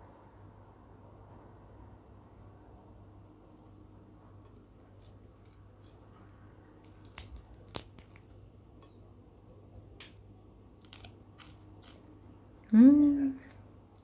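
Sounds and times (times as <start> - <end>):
crisp cracks of fried fish fin: 6.7 - 8.4.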